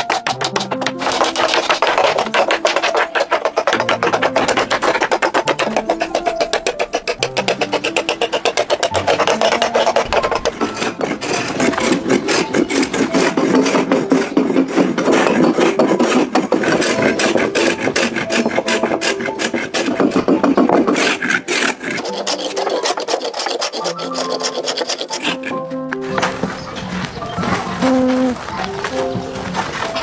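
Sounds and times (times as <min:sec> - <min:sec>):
hand tools scraping wood: 0:00.0 - 0:30.0.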